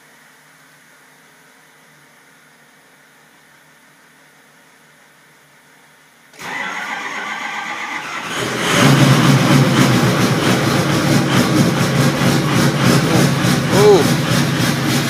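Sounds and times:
diesel engine running: 6.4 - 15.0.

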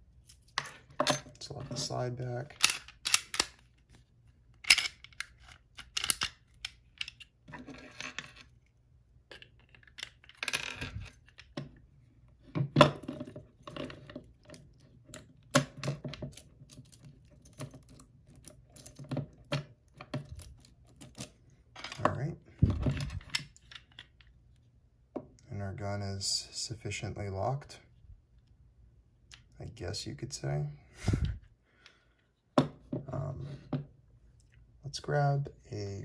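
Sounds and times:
pistol handling clicks and clacks: 2.5 - 3.6.

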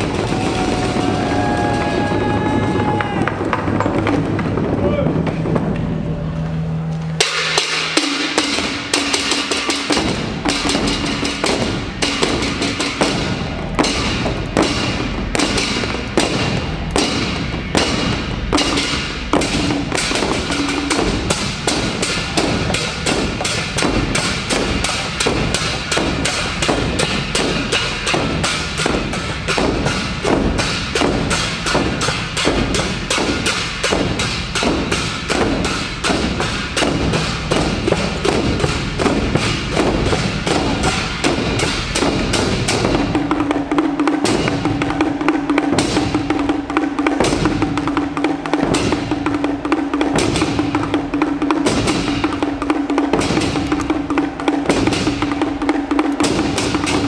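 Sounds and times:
drum and wooden strikes: 0.0 - 57.0.

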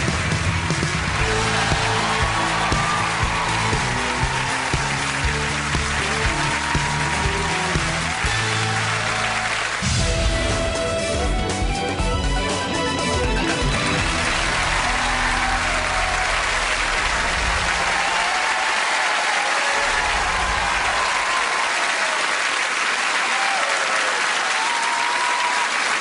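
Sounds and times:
audience applauding: 0.0 - 10.7, 13.6 - 26.0
music: 0.0 - 18.6.

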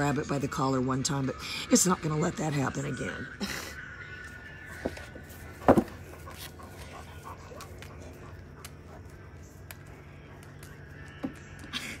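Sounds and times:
dog panting: 4.6 - 11.2.

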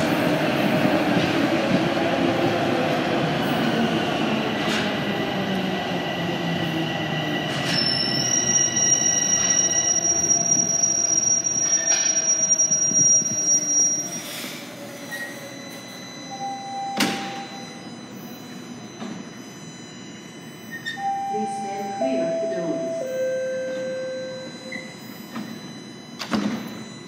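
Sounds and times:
subway train rumble: 0.0 - 20.6
high-pitched brake squeal: 7.4 - 15.9, 20.6 - 21.1.

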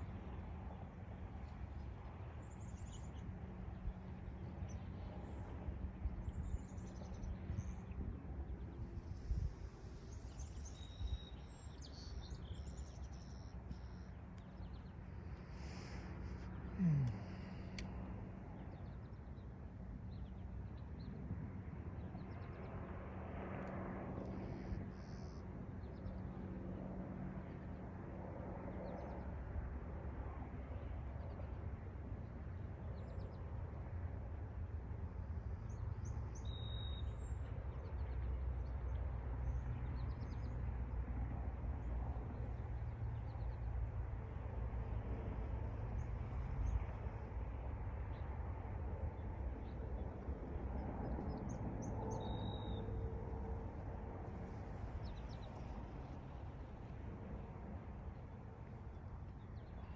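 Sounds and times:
wind rumble on microphone: 0.0 - 36.9, 37.6 - 59.9
wind blowing: 8.0 - 11.5
faint bird chirps: 51.4 - 53.0.

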